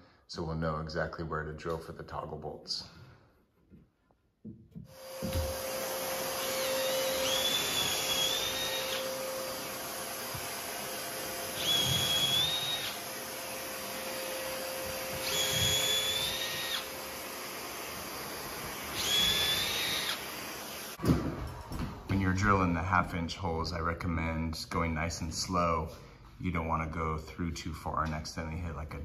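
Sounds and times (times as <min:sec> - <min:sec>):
vacuum cleaner running: 0:04.8 - 0:22.8
cordless drill whining: 0:04.9 - 0:22.0.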